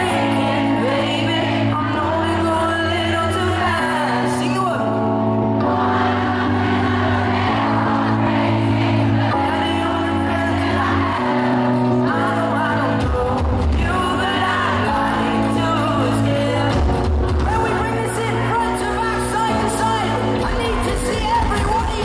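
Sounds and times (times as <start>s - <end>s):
bass guitar: 0.0s - 22.0s
person singing: 9.3s - 22.0s
drums: 10.4s - 22.0s.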